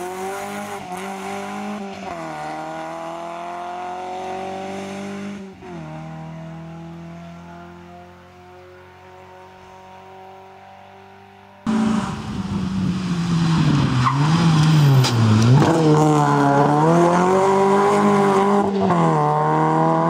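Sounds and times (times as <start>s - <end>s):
rally car engine: 0.0s - 20.0s
tyres on gritty road: 11.7s - 20.0s.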